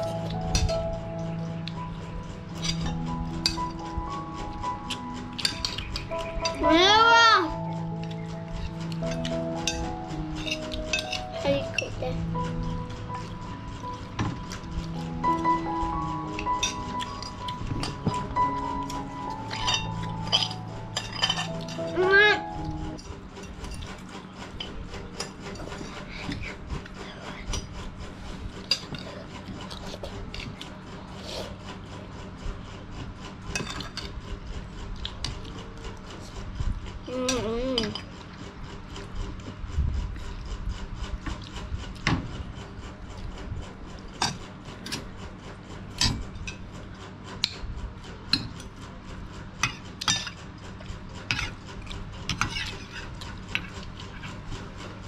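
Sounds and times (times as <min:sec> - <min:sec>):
steady low hum: 0:00.0 - 0:55.0
spoons clinking on ceramic plates: 0:19.5 - 0:21.8.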